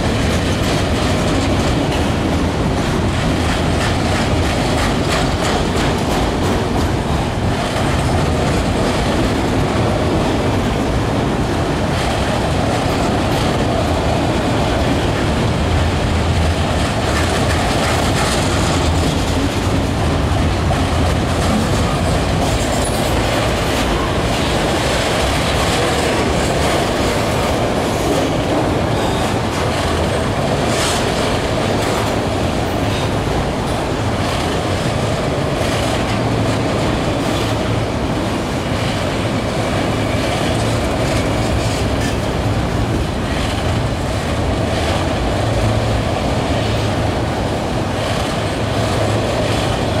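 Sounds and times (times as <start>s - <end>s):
rail clicks: 0.0s - 50.0s
train wheels on rails: 0.0s - 50.0s.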